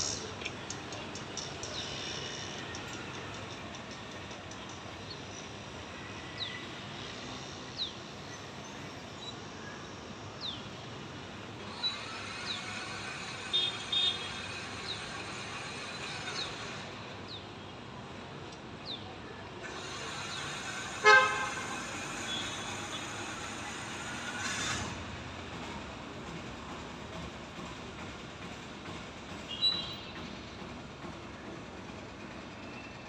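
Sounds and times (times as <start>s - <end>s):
street traffic hum: 0.0s - 33.0s
vehicle horn honking: 21.0s - 22.6s.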